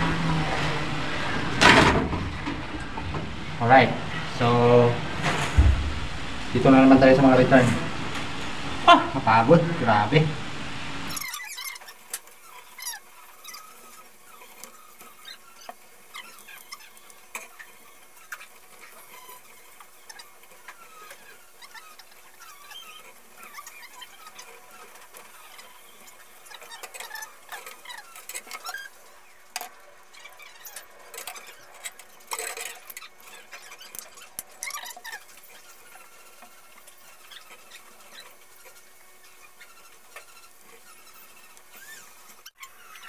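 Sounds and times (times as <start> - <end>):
short high squeaks: 11.1 - 29.4, 30.1 - 43.0.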